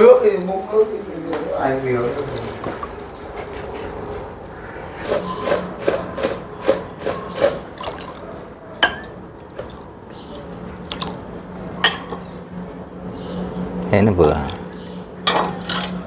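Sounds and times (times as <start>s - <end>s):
metal ladle clinking ceramic bowl: 8.8s - 9.2s.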